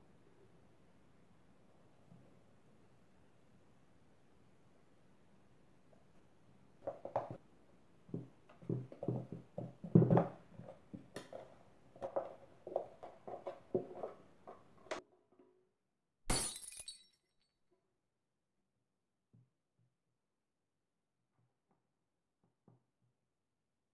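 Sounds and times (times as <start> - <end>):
glass breaking: 16.3 - 17.4.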